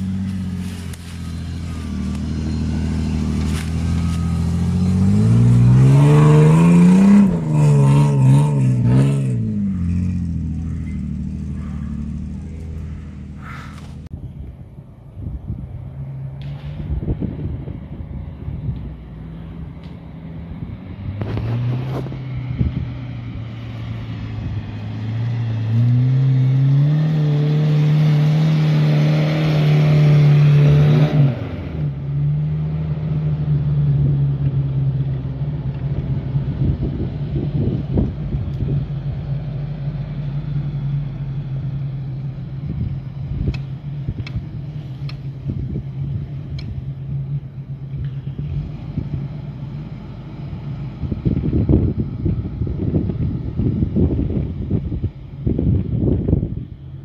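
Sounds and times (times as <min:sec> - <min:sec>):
car engine revving: 0:00.0 - 0:14.1, 0:19.8 - 0:36.8.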